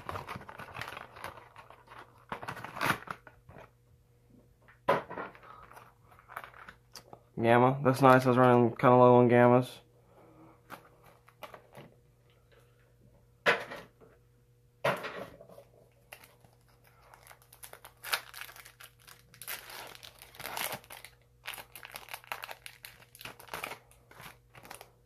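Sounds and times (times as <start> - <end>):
foil wrapper crinkling and tearing: 0.0 - 3.7, 5.4 - 7.1, 15.9 - 25.0.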